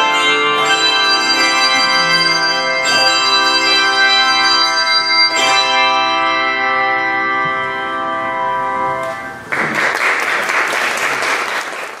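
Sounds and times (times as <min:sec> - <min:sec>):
congregation applauding: 0:09.4 - 0:12.0.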